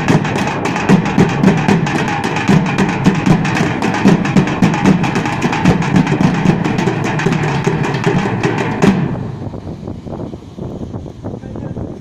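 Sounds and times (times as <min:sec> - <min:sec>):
drummers beating metal drums: 0:00.0 - 0:09.4.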